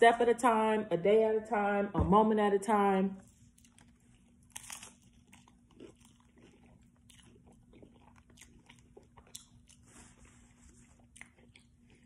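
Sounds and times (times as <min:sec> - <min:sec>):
faint steady hum: 0:00.0 - 0:12.0
chewing crunches: 0:03.3 - 0:12.0
crunchy taco shell bite: 0:03.5 - 0:09.8.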